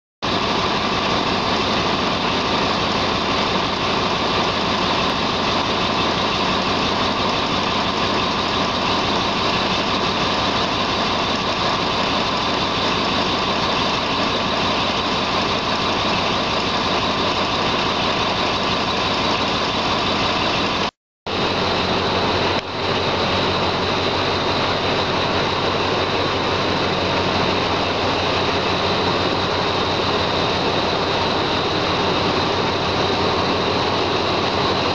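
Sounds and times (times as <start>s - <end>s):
diesel locomotive engine running: 0.2s - 34.9s
train moving along platform: 0.3s - 34.9s.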